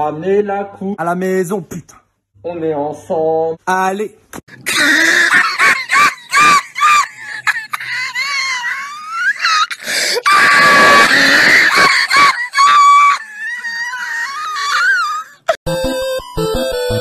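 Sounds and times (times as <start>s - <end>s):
person screaming laughter: 4.6s - 15.6s
wheezy gasps: 9.4s - 10.3s.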